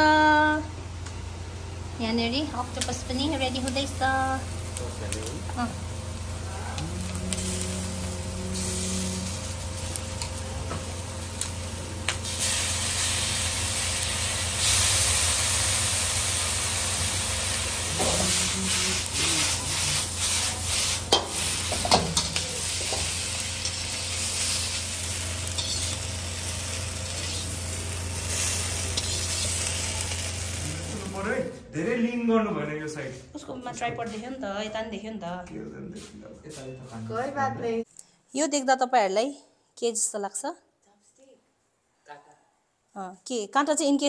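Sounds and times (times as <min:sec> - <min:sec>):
food sizzling in a wok: 0:00.0 - 0:31.4
wok knocks and scrapes: 0:20.5 - 0:23.8, 0:25.6 - 0:26.1.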